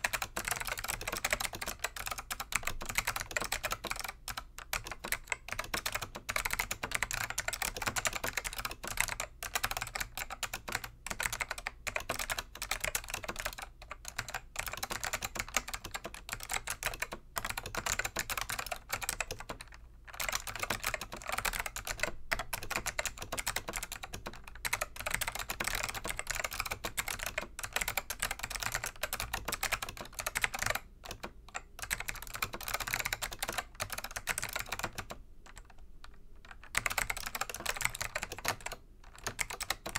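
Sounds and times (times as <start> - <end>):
fast keyboard typing clicks: 0.0 - 39.9.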